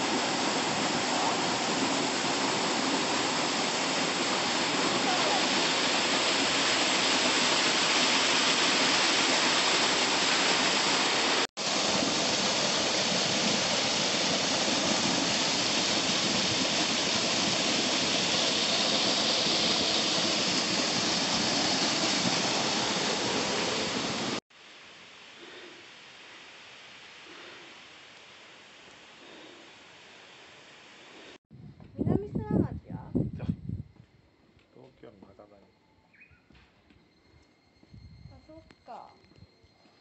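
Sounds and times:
waterfall rushing: 0:00.0 - 0:24.4.

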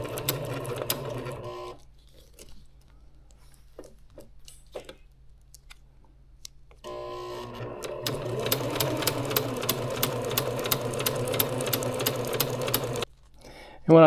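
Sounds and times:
sewing machine stitching: 0:00.0 - 0:01.8, 0:06.9 - 0:13.1.

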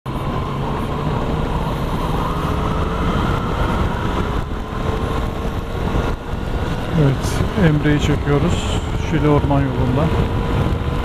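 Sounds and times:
wind rushing over microphone: 0:00.1 - 0:11.0.

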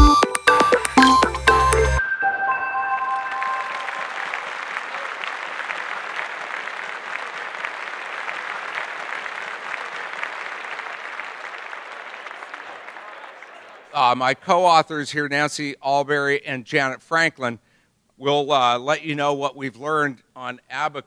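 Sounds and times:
intro music jingle: 0:00.1 - 0:04.3
audience applauding: 0:02.9 - 0:14.2.

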